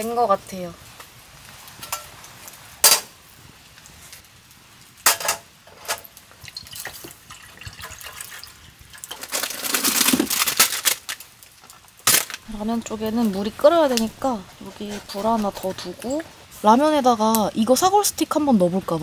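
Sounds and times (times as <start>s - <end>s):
water poured into metal tin: 5.9s - 11.2s.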